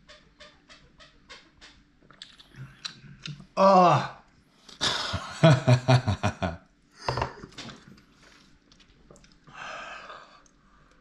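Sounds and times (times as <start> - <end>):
man gagging: 3.6 - 4.2.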